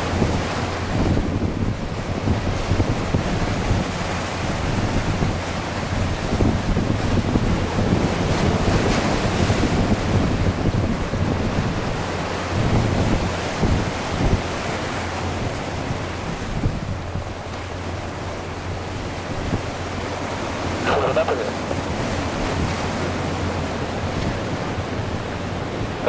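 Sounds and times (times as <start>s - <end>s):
wind buffeting microphone: 0.0s - 26.0s
jet engines roaring: 20.4s - 24.1s.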